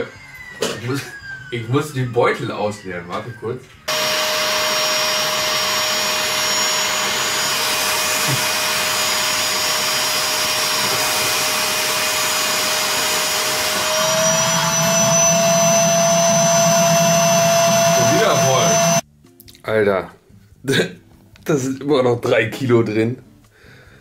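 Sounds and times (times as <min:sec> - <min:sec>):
vacuum cleaner running: 0:03.9 - 0:19.0.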